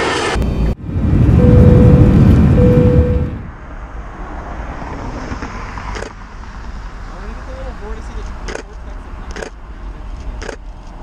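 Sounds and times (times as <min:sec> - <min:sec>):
loud low rumble: 0:00.0 - 0:03.8
road traffic noise: 0:00.0 - 0:11.0
short steady tone: 0:01.3 - 0:03.5.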